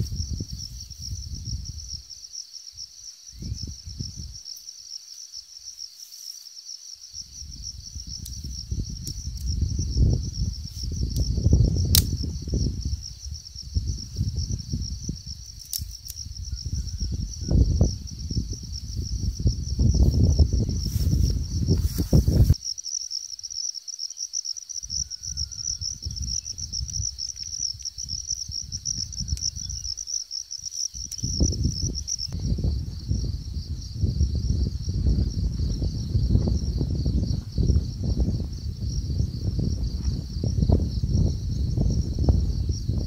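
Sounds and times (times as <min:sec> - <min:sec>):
wind buffeting microphone: 0:00.0 - 0:02.0, 0:03.3 - 0:04.4, 0:07.2 - 0:22.6, 0:24.8 - 0:30.0, 0:30.6 - 0:43.0
insects chirring: 0:00.0 - 0:43.0
sharp crack: 0:11.9 - 0:12.2.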